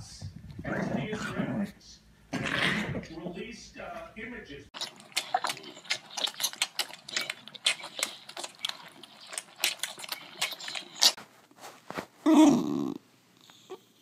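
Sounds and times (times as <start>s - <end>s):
lion cubs sucking on bottles: 4.8s - 11.2s.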